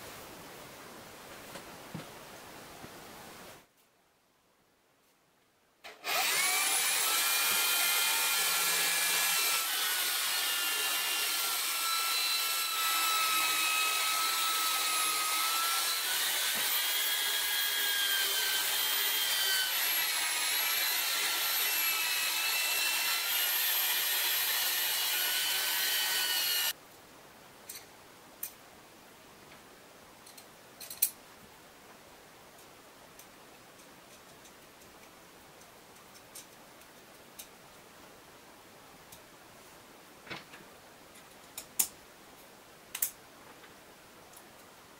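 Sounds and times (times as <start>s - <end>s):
electric drill cutting steel: 5.9s - 26.8s.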